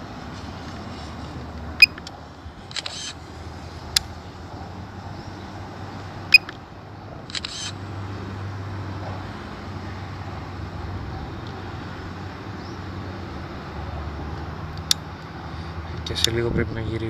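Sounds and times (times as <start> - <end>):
sharp clicks: 1.8 - 3.2, 7.2 - 7.8.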